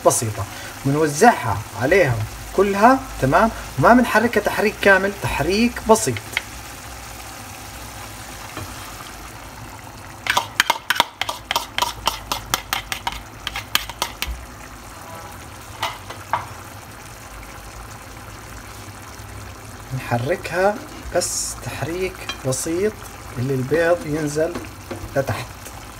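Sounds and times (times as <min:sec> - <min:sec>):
sauce simmering with low sizzle: 0:00.0 - 0:25.9
metal spoon scraping a bowl: 0:10.7 - 0:14.2.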